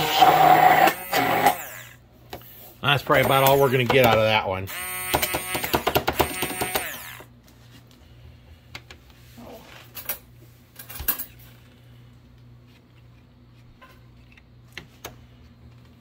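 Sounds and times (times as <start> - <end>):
stick blender motor winding down: 0.0 - 2.0, 4.7 - 7.3.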